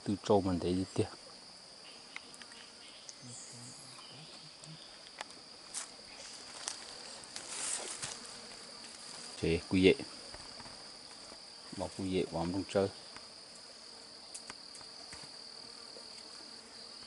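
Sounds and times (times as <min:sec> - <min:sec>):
insects droning: 0:00.0 - 0:17.0
faint low voice: 0:03.2 - 0:04.9
short rustle: 0:05.8 - 0:09.4.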